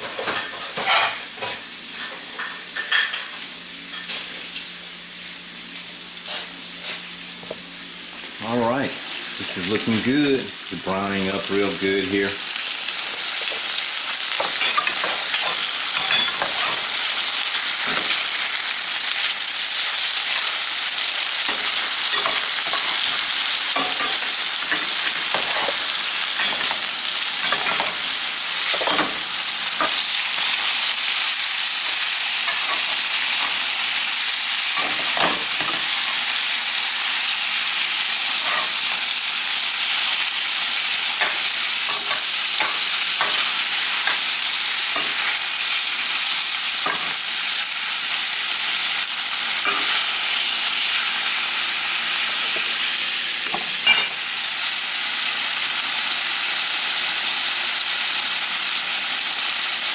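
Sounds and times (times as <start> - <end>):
bacon and sausage sizzling: 0.0 - 59.9
metal spoon scraping a pan: 14.4 - 16.9, 21.4 - 29.2, 38.3 - 38.9, 41.1 - 44.3, 49.6 - 50.1.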